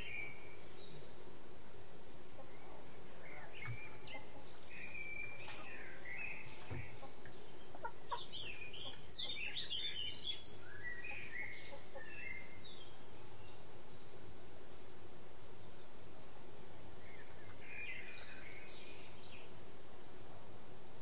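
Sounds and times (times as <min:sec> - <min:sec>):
bird clucking calls: 0:02.4 - 0:10.0, 0:10.9 - 0:12.4.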